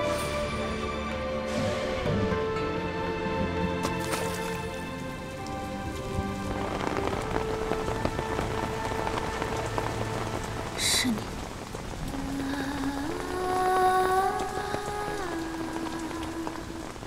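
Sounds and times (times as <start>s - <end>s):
soft background music: 0.0s - 17.0s
steady rain pouring: 0.0s - 17.0s.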